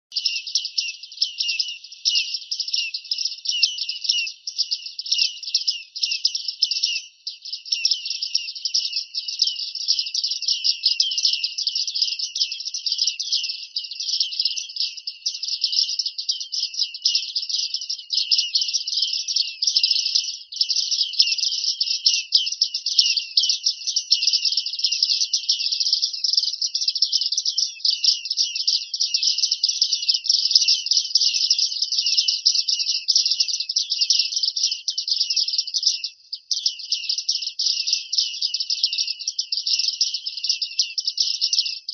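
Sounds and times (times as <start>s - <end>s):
high ping-like bird calls: 0.1s - 13.5s.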